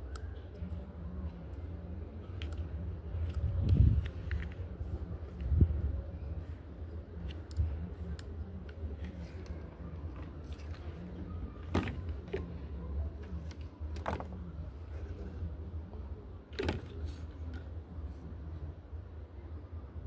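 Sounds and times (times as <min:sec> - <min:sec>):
plastic parts clacking on wood: 0:13.2 - 0:14.4.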